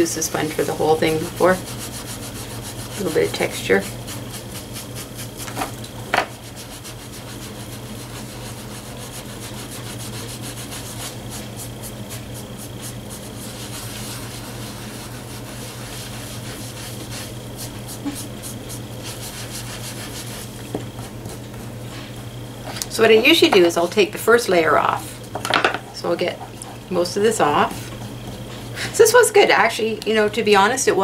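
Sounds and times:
steady low hum: 0.0s - 31.0s
wet sponge scrubbing paper: 0.4s - 5.6s, 6.3s - 21.7s.

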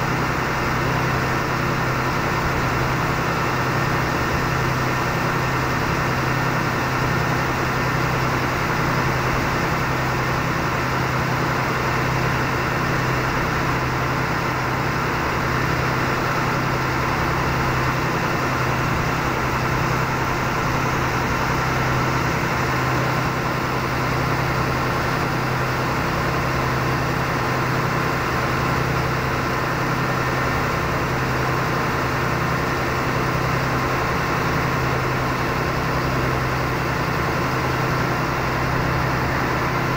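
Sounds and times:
boat engine humming: 0.0s - 39.9s.

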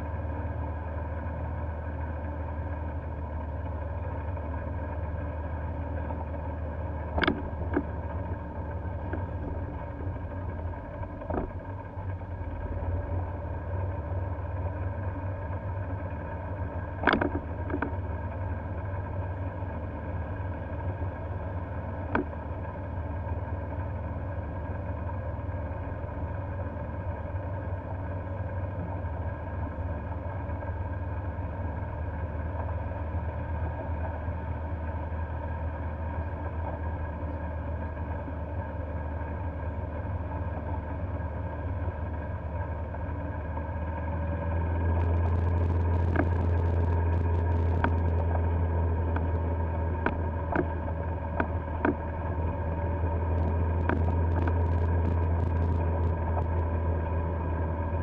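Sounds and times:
golf cart driving: 0.0s - 58.0s
faint click: 45.0s - 48.4s, 53.4s - 56.7s.

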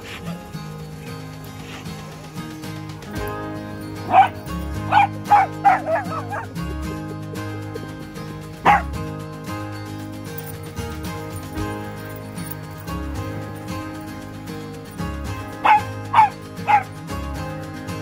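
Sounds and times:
background music: 0.0s - 18.0s
dog barking: 3.9s - 6.6s, 8.6s - 8.9s, 15.5s - 17.0s.

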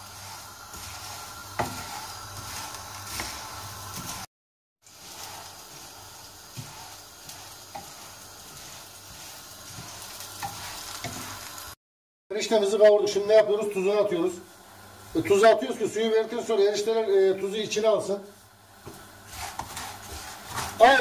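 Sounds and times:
noodles sizzling in oil: 0.0s - 11.8s, 12.6s - 21.0s.

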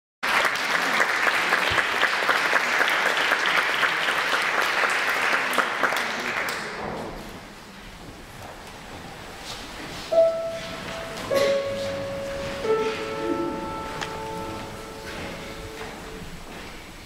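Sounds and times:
audience applauding: 0.2s - 6.8s.

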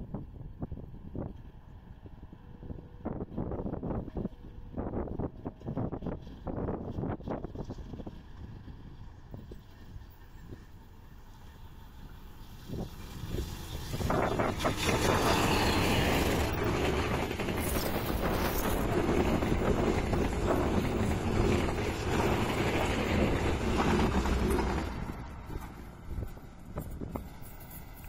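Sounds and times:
locomotive engine: 3.6s - 28.0s
train wheels clattering over rails: 12.4s - 28.0s.

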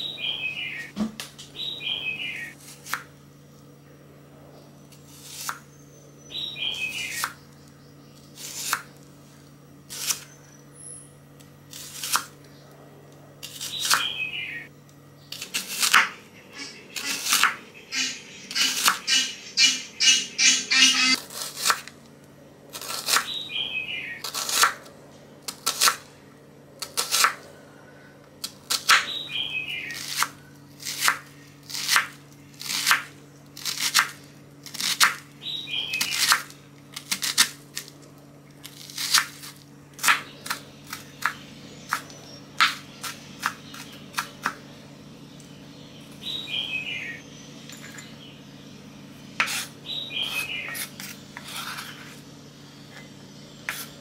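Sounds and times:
falling chirp: 0.0s - 2.6s, 16.1s - 21.2s, 45.2s - 49.2s, 49.8s - 51.0s
knife chopping on wooden board: 38.8s - 44.6s, 49.4s - 52.2s, 53.7s - 54.0s.

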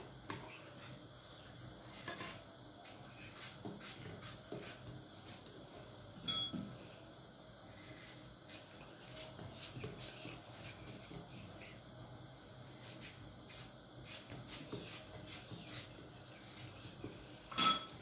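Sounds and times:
ringing clink: 6.2s - 6.6s, 17.5s - 17.9s.

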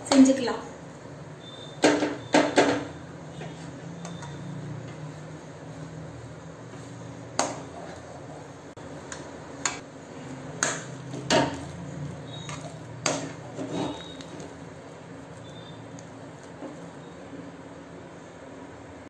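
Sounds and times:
metal spatula scraping a metal pan: 10.6s - 14.4s.

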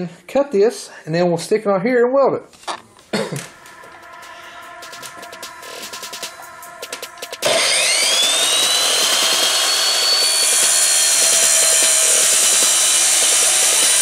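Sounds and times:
miter saw motor whining: 3.6s - 14.0s
saw grinding screech through metal: 7.4s - 14.0s.

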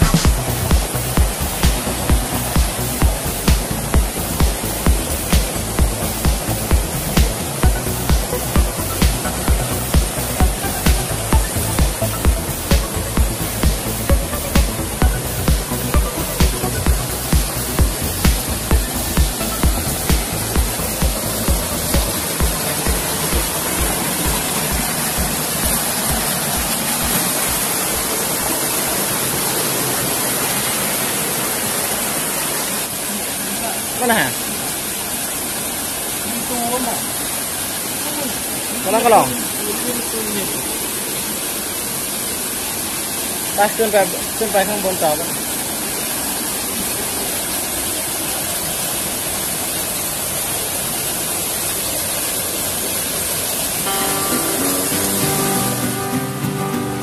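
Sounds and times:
background music low beat: 0.0s - 28.1s
stream rushing over waterfall: 0.0s - 57.0s.

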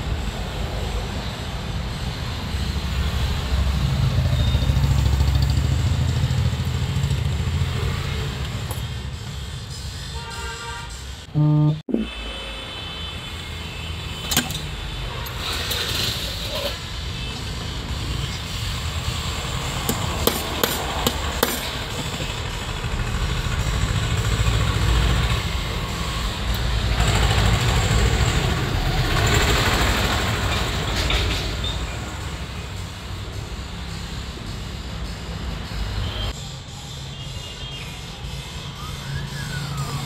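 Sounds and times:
motor vehicles rumbling: 0.0s - 40.0s
short horn-like tone: 10.2s - 12.8s
hand tools clinking on metal: 19.9s - 22.4s.

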